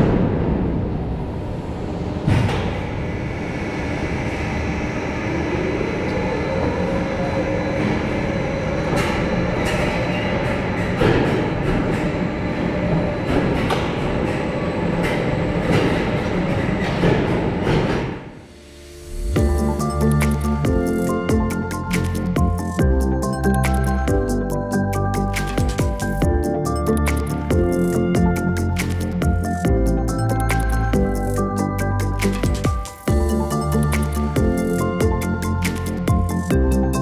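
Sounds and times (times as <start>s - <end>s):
roller coaster train rumbling: 0.0s - 18.4s
rising mechanical tone: 18.4s - 37.0s.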